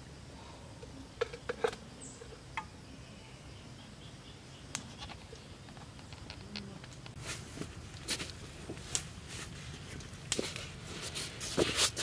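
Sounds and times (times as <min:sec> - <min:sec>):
low steady background noise: 0:00.0 - 0:12.0
sharp clicks and light knocks: 0:04.7 - 0:07.2.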